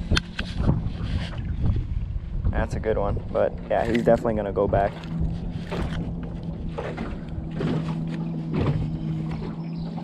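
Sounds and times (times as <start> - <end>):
knocks on boat: 3.9 - 9.6.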